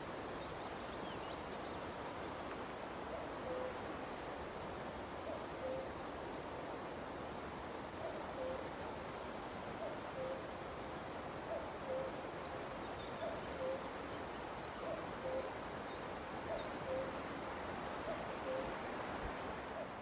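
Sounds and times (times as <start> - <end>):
wind hiss: 0.0 - 20.0
cuckoo calling: 5.3 - 6.0, 13.1 - 13.9, 14.8 - 15.6, 16.5 - 17.2, 18.1 - 18.7.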